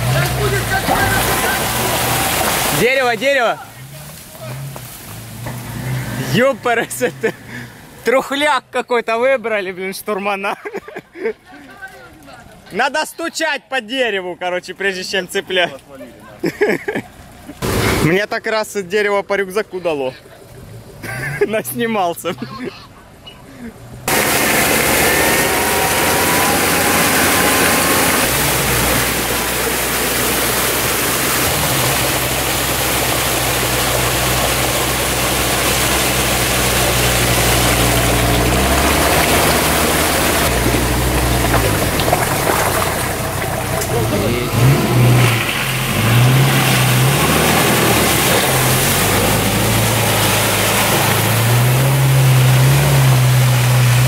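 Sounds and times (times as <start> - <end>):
engine revving under load: 0.0 - 3.0, 3.7 - 8.0, 23.8 - 54.0.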